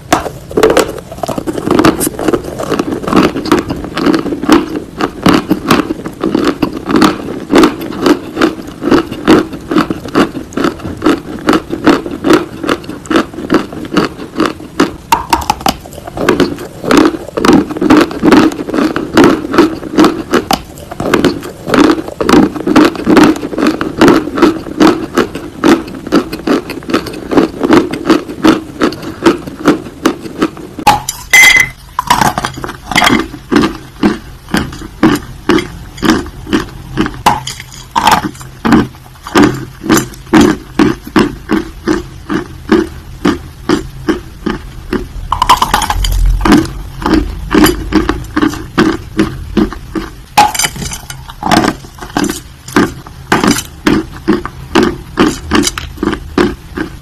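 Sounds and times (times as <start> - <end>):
crunching dry clay: 0.0 - 43.8.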